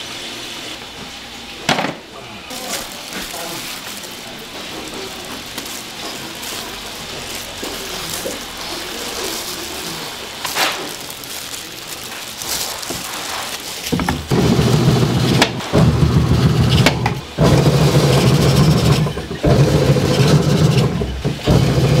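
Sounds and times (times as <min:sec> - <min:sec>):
food sizzling on a pan: 0:02.5 - 0:14.1.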